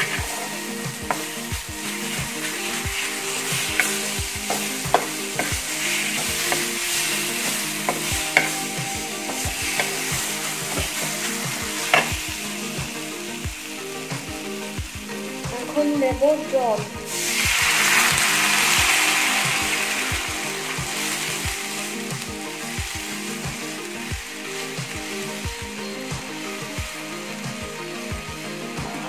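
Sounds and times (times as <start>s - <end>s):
metal spoon scraping a pan: 0.0s - 12.2s
masala sizzling in a pan: 0.0s - 29.0s.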